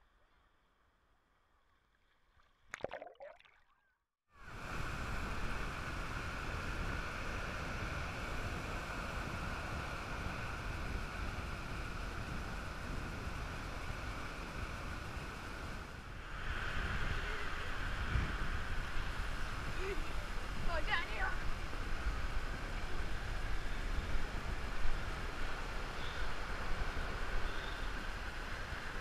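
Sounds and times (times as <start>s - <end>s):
water splash: 2.4s - 3.7s.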